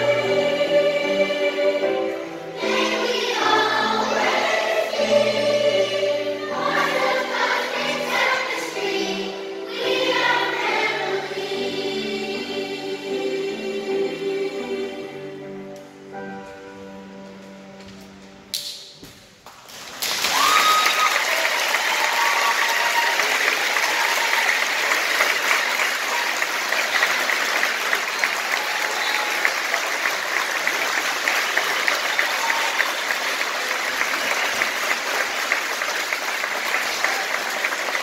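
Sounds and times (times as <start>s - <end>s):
large audience applauding: 19.4s - 38.0s.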